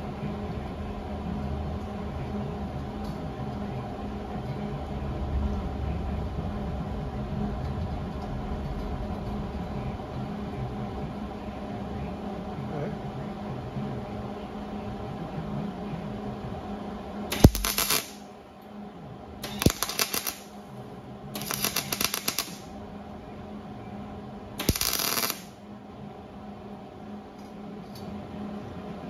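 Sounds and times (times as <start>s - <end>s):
welder arc crackling: 17.3s - 18.3s, 19.4s - 20.6s, 21.4s - 22.8s, 24.6s - 25.6s.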